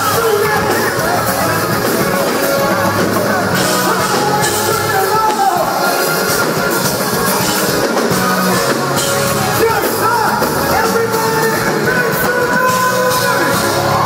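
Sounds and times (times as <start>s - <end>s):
live band with singing: 0.0s - 14.0s.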